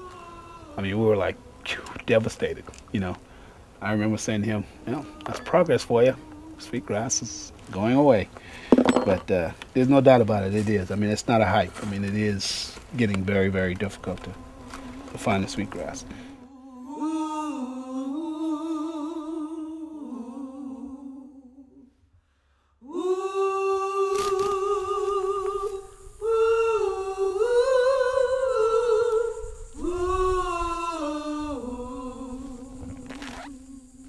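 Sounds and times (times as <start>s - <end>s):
person humming a slow melody: 0.0s - 2.6s, 3.8s - 8.2s, 13.3s - 22.0s, 22.8s - 34.0s.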